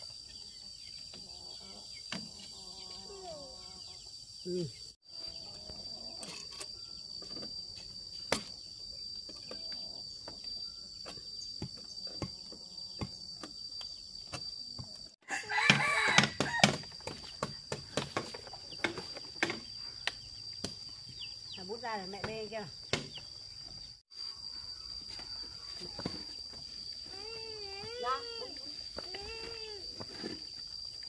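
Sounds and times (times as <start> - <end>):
high insect drone: 0.0 - 31.0
rooster crowing: 15.2 - 16.8.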